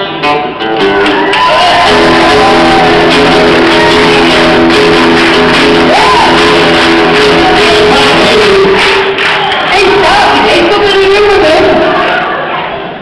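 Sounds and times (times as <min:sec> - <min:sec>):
acoustic guitar: 0:00.0 - 0:12.5
audience whoop: 0:00.9 - 0:09.8
audience shouting: 0:01.0 - 0:13.0
person singing: 0:01.8 - 0:09.1.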